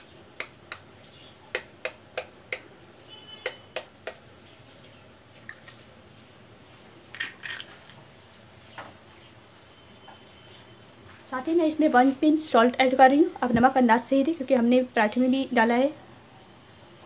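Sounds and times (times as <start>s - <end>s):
eggshell crackling apart: 7.1s - 8.0s.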